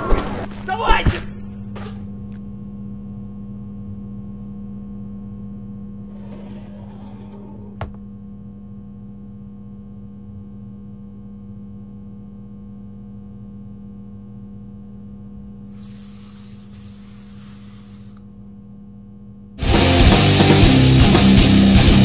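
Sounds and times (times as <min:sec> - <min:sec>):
steady low hum: 0:00.0 - 0:19.6
soft hiss: 0:15.7 - 0:18.2.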